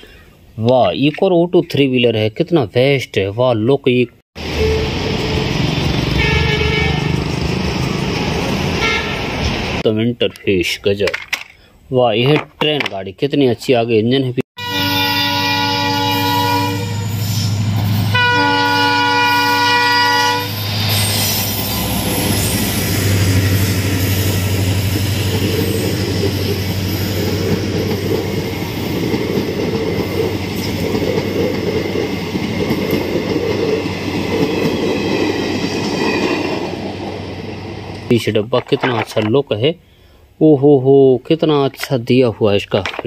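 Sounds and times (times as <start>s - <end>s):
locomotive horn blasts: 4.4s - 7.3s, 8.8s - 9.4s, 14.6s - 17.2s, 18.1s - 20.6s
train wheels clattering on rails: 24.1s - 37.2s.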